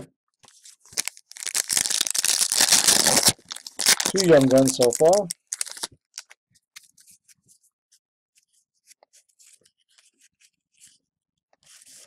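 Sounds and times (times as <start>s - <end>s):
trading cards rustling: 0.5s - 7.0s.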